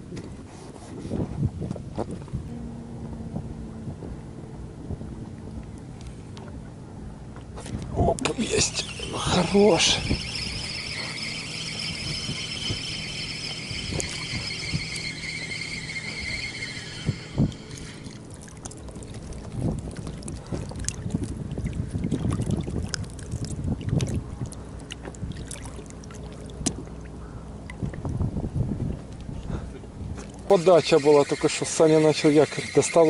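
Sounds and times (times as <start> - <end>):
fishing reel whirring: 8.2 - 18.4, 30.5 - 33.0.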